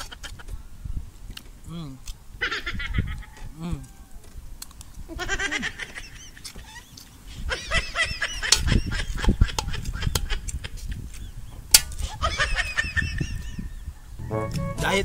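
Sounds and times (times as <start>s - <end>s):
poultry calling: 2.4s - 4.3s, 5.1s - 15.0s.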